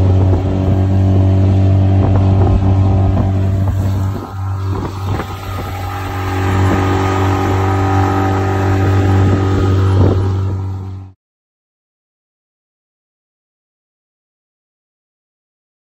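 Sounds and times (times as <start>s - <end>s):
outboard motor running: 0.0s - 11.2s.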